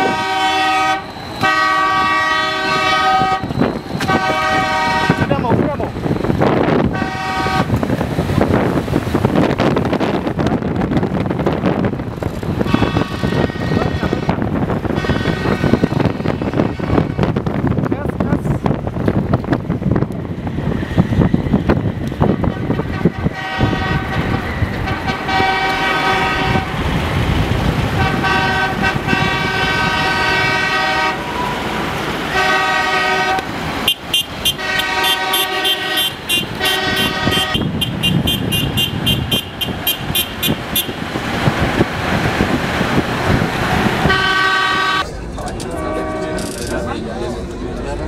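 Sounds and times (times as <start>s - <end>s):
vehicle horns honking: 0.0s - 5.6s, 6.8s - 7.8s, 12.6s - 17.5s, 22.4s - 26.8s, 27.9s - 31.7s, 32.3s - 41.0s, 44.0s - 45.1s, 45.7s - 46.6s
moving vehicle rumble and wind: 0.0s - 48.0s.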